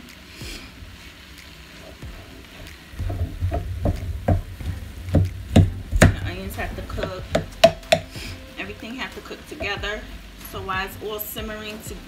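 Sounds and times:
vegetables sizzling in a frying pan: 0.0s - 12.0s
spoon knocking against pan: 3.0s - 8.2s.

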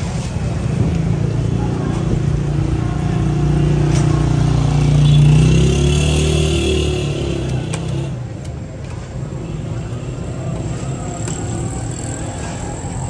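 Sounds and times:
vehicle engine passing: 3.0s - 8.1s.

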